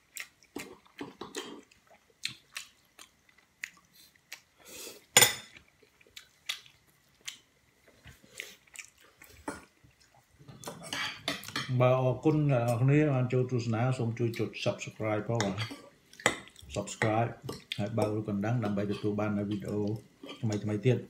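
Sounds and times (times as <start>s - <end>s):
person chewing: 0.0s - 11.6s, 15.8s - 20.7s
cutlery clinking on a bowl: 10.5s - 11.8s, 15.3s - 20.7s.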